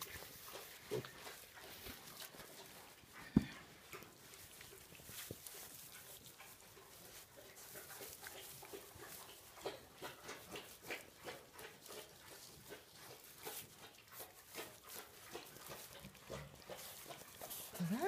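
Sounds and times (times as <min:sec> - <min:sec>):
rustling in straw: 0:00.0 - 0:03.0, 0:03.7 - 0:09.7, 0:10.3 - 0:18.0
piglets grunting softly: 0:16.3 - 0:18.0.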